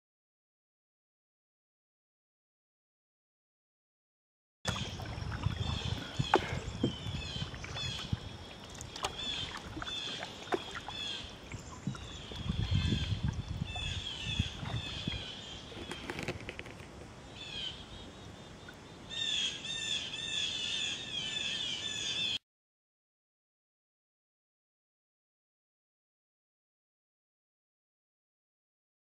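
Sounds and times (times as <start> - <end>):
canoe paddle swishing in water: 4.7 - 17.1
songbirds chirping: 4.7 - 22.4.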